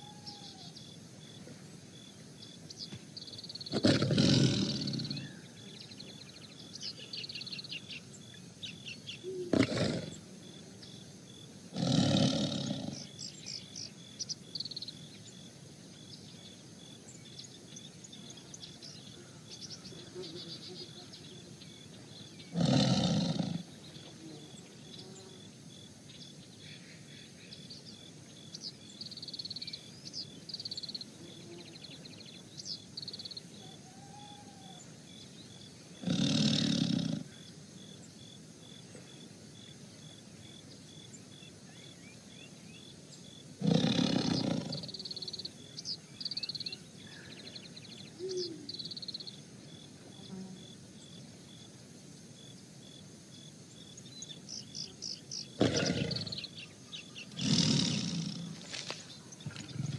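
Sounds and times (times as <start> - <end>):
bird calls: 0.0 - 1.6, 2.6 - 10.2, 43.6 - 49.3, 54.0 - 59.9
pulsing insect chirp: 0.0 - 59.9
tiger roaring: 3.7 - 5.3, 9.5 - 10.2, 11.7 - 13.1, 22.5 - 23.7, 36.0 - 37.3, 43.6 - 45.0, 55.6 - 56.5, 57.3 - 58.7, 59.5 - 59.9.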